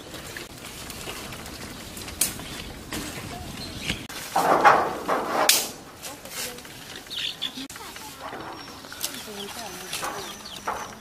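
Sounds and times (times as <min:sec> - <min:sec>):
sticks crackling in fire: 0:00.0 - 0:11.0
sticks pushed into fire rustling: 0:00.8 - 0:07.0.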